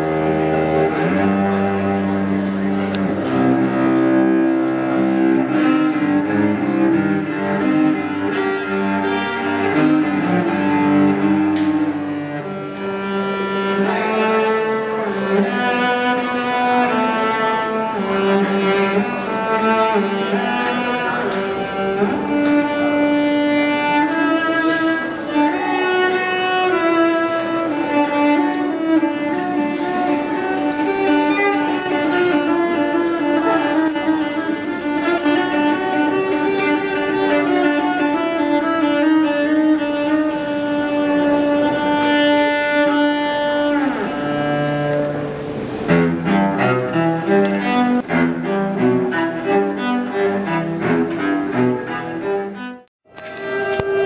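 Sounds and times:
cello bowed melody: 0.0 - 54.0.

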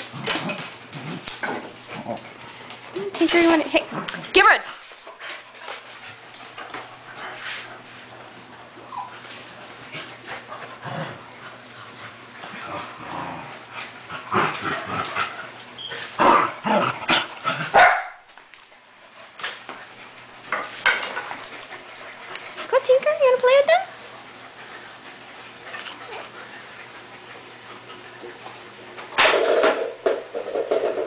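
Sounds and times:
dogs barking and yipping: 17.7 - 18.2.

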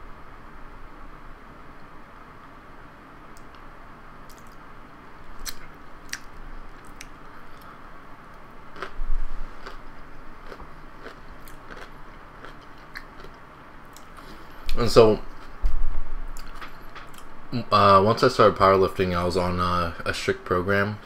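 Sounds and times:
chewing and wet mouth sounds: 5.4 - 7.8, 8.7 - 14.8.

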